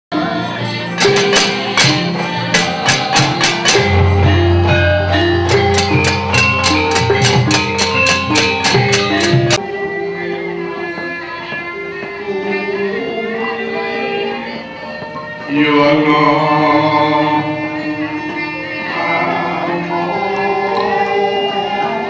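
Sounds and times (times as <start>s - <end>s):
metallophone notes ringing: 1.0s - 9.6s.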